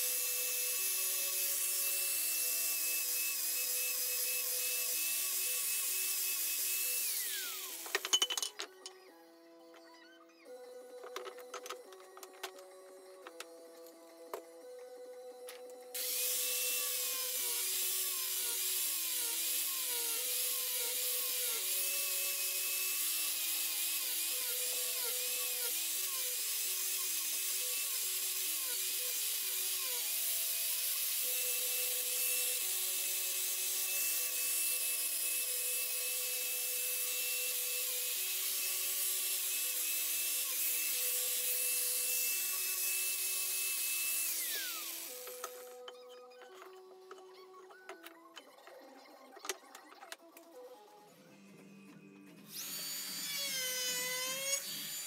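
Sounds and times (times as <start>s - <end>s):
grinder spinning down: 0.0s - 9.0s, 40.3s - 48.0s
angle grinder carving wood: 0.0s - 9.1s, 15.9s - 50.6s, 52.4s - 55.0s.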